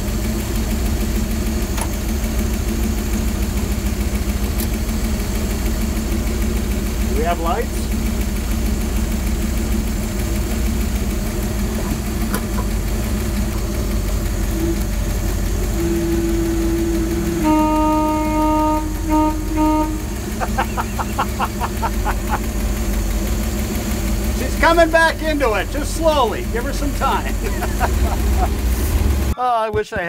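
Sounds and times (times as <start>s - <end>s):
van engine idling: 0.0s - 29.4s
vehicle horn blasts: 14.5s - 22.4s.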